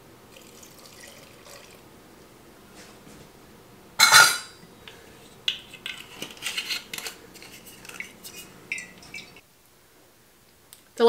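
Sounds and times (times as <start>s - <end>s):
kitchenware clattering: 4.0s - 9.4s.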